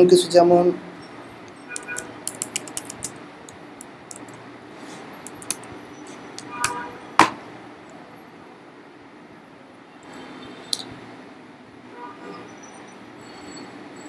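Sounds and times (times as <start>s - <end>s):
keyboard typing: 1.7s - 4.4s, 5.3s - 5.7s.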